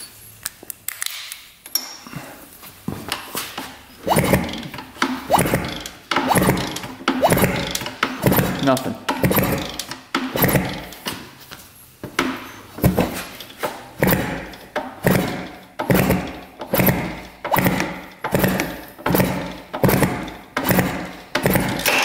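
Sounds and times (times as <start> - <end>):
motorcycle engine kick-starting: 3.6 - 11.1, 12.2 - 22.0.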